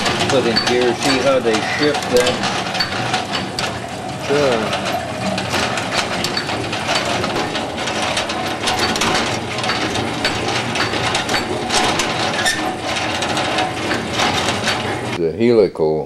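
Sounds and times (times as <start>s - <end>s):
washing machine gears clattering: 0.0s - 15.2s.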